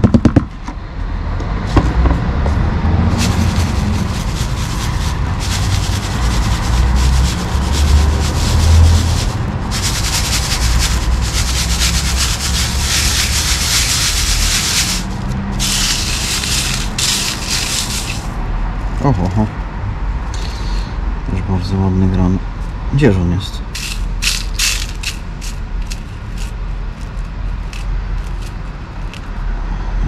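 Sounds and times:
sand and gravel scraping: 0:03.0 - 0:18.4, 0:23.8 - 0:29.4.

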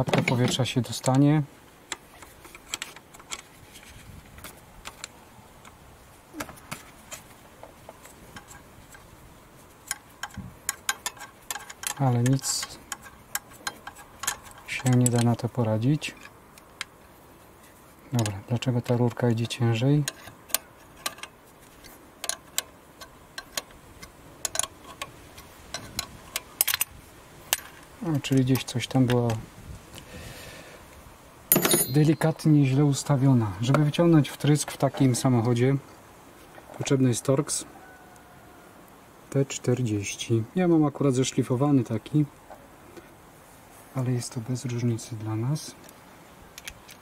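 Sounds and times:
metallic clicks of spanner on nut: 0:09.8 - 0:15.5, 0:18.2 - 0:21.4, 0:22.2 - 0:26.9, 0:31.5 - 0:32.4
wrench clicking on metal fitting: 0:24.4 - 0:25.1.

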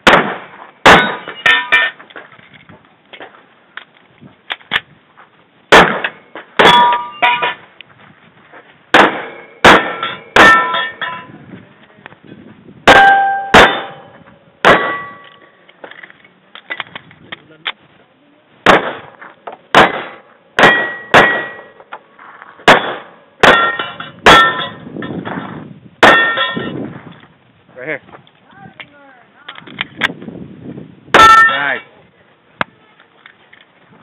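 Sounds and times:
pistol shots: 0:00.0 - 0:01.6, 0:05.7 - 0:07.5, 0:08.9 - 0:11.0, 0:12.9 - 0:15.2, 0:18.6 - 0:21.8, 0:22.6 - 0:24.8
steel plate target ringing: 0:00.2 - 0:02.0, 0:05.8 - 0:07.7, 0:09.0 - 0:11.4, 0:12.9 - 0:15.4, 0:19.8 - 0:21.8, 0:22.7 - 0:25.4, 0:26.0 - 0:26.8, 0:31.2 - 0:31.8.

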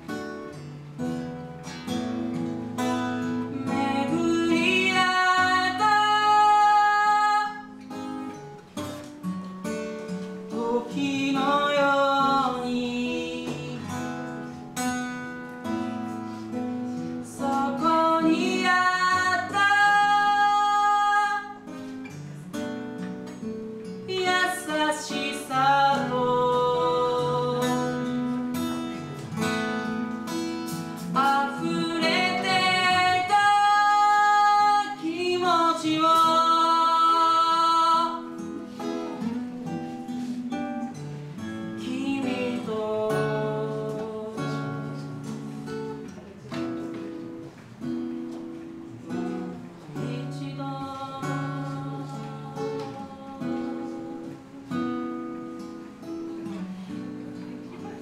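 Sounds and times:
acoustic guitar strummed and picked: 0:00.0 - 0:58.0
man singing: 0:10.6 - 0:14.2, 0:31.0 - 0:38.3.

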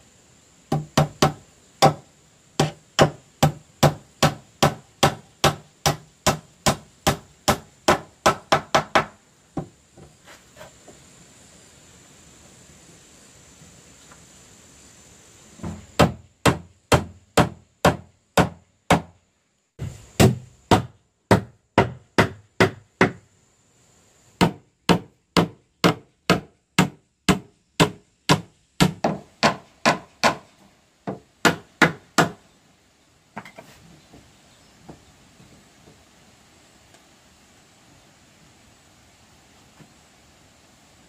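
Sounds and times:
hammer striking nails into wood: 0:00.7 - 0:02.0, 0:02.6 - 0:09.2, 0:15.6 - 0:19.2, 0:20.2 - 0:23.2, 0:24.4 - 0:32.4.

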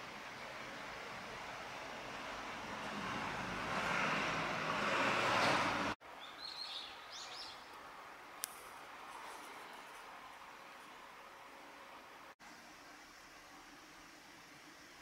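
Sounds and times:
passing vehicle: 0:01.2 - 0:06.0
bird chirping: 0:06.2 - 0:07.8.

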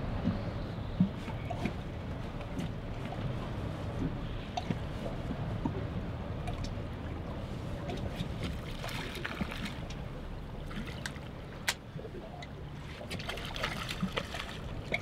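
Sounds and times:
water lapping against boat hull: 0:00.0 - 0:15.0
wind: 0:00.0 - 0:15.0
small splashes: 0:07.8 - 0:10.0, 0:10.6 - 0:15.0.

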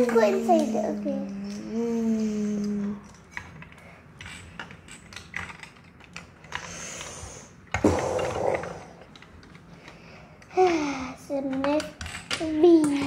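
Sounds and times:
plastic pieces clicking on glass: 0:03.0 - 0:06.6.

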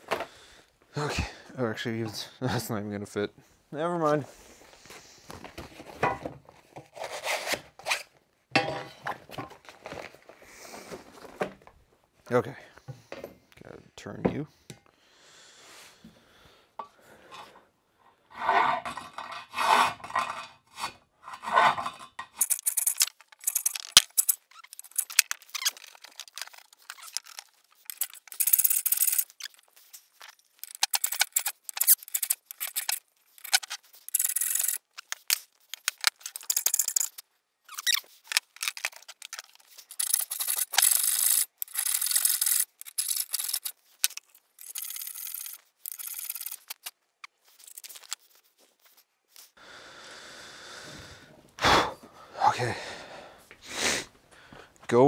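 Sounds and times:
hand file rasping on metal: 0:18.3 - 0:23.0.

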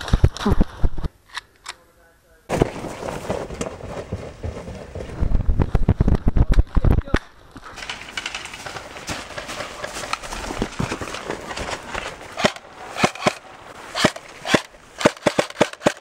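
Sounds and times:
airsoft rifle shots: 0:12.4 - 0:16.0.

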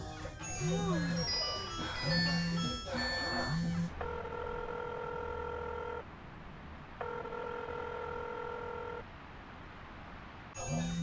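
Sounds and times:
telephone ringback tone: 0:00.5 - 0:06.0, 0:07.0 - 0:09.0.

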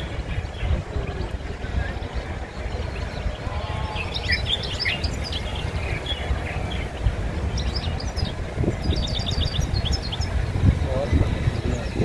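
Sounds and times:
songbirds chirping and twittering: 0:00.0 - 0:12.0.

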